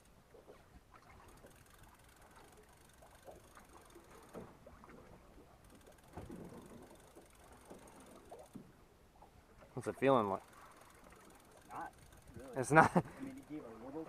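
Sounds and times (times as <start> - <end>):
fishing reel clicking: 1.2 - 4.5, 5.6 - 8.6, 9.8 - 13.7.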